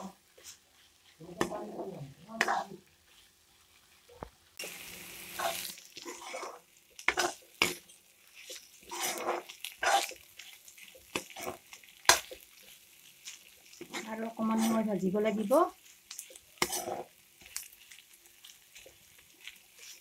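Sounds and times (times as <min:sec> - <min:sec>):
spatula scraping a metal pan: 0:00.0 - 0:03.4, 0:05.3 - 0:12.4, 0:16.1 - 0:17.7.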